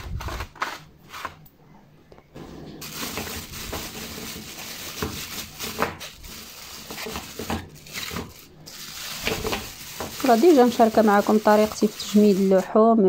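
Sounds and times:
sharp crackles: 0:02.8 - 0:12.7
plastic bag crinkling: 0:02.8 - 0:12.8.

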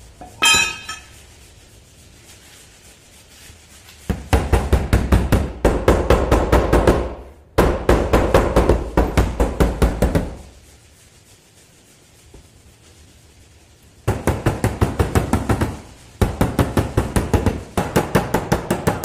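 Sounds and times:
rapid knocking on sheet metal: 0:04.1 - 0:10.4, 0:14.1 - 0:19.0.

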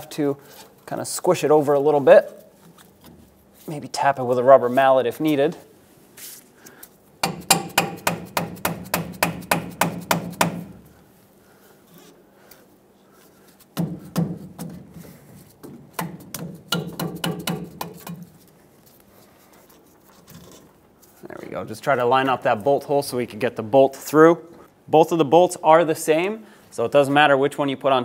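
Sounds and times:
rubber mallet tapping metal: 0:07.2 - 0:10.7, 0:15.9 - 0:18.3.

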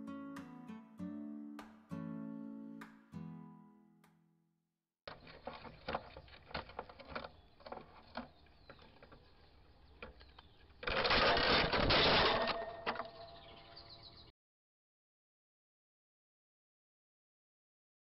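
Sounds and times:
clicks and knocks on camera: 0:05.1 - 0:09.2.

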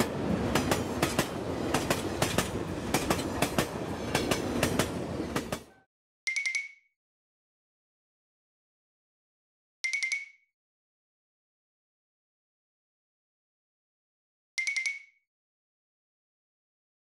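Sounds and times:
wheels clacking over rail joints: 0:00.0 - 0:05.7
passing train rumble: 0:00.0 - 0:05.8.

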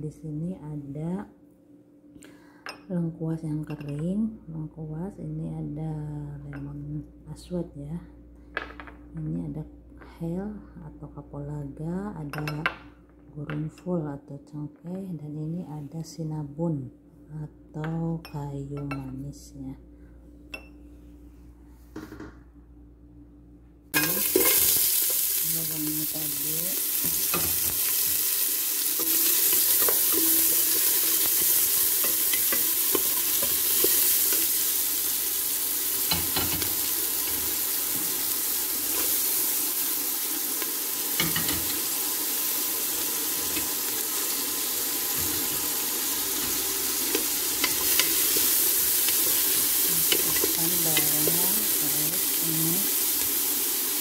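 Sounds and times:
onion and garlic sizzling in oil: 0:23.9 - 0:54.0.

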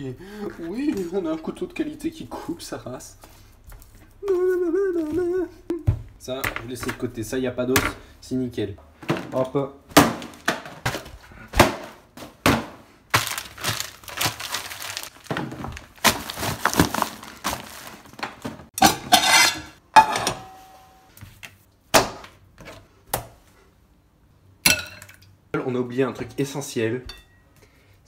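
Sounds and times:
plastic bags crackling and crunching: 0:13.1 - 0:18.7.

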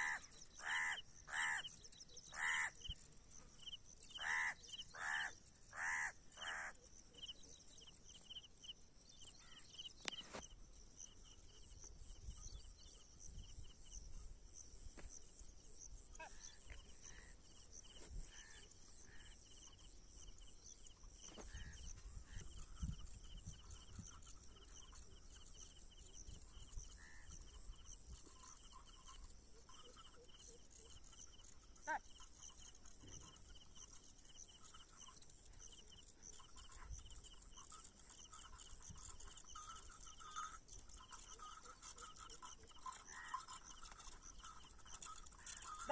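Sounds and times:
loud bird calls: 0:00.0 - 0:03.0, 0:04.1 - 0:06.8.

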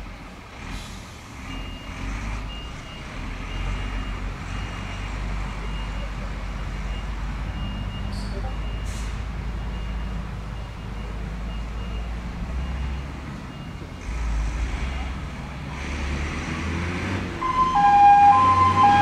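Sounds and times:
fire truck engine running: 0:17.3 - 0:19.0
reversing alarm beeping: 0:17.4 - 0:19.0.

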